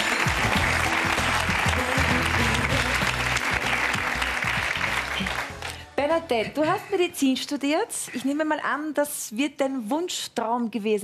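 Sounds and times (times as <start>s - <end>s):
audience applauding: 0.0s - 5.9s
music: 0.0s - 7.5s.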